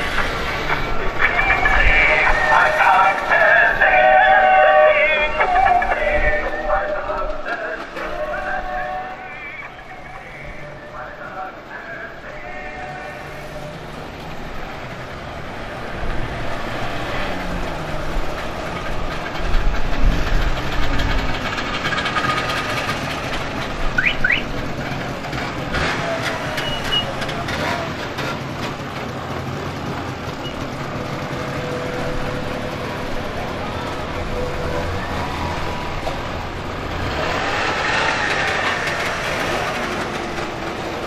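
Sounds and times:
cars pulling away: 0.0 - 41.0
two-stroke exhaust ticking: 18.3 - 31.6.

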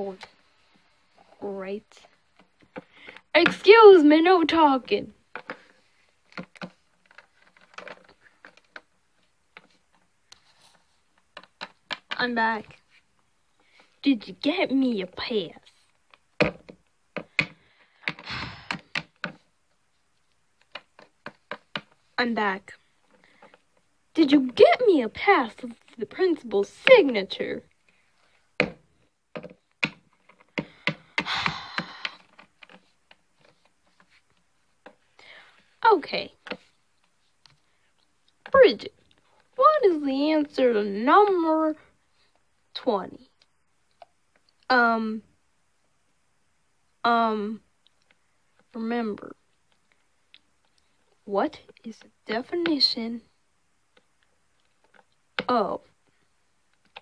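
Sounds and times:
plastic figurines tapping and clicking: 2.0 - 3.8, 4.8 - 10.4, 11.2 - 12.8, 16.1 - 19.5, 20.3 - 22.0, 28.6 - 34.2.

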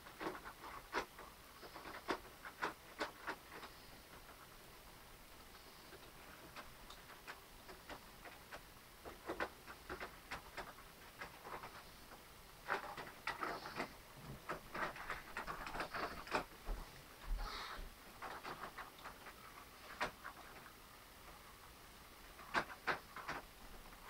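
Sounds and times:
model train clicking on track: 0.0 - 4.5, 5.9 - 13.9, 14.5 - 16.5, 18.2 - 20.7, 22.3 - 24.0.

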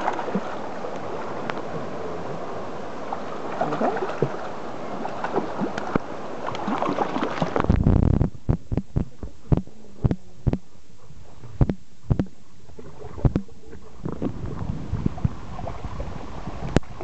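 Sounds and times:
fish splashing in water: 3.4 - 7.7
muffled underwater knocks: 7.5 - 15.8
loud low underwater rumble: 7.6 - 17.0.

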